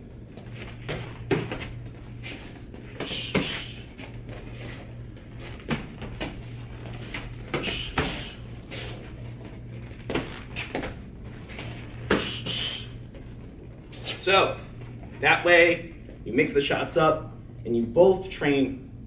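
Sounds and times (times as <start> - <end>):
boxing gloves thudding: 0.6 - 2.0, 2.8 - 4.3, 5.4 - 6.4, 7.1 - 8.4, 12.0 - 12.5.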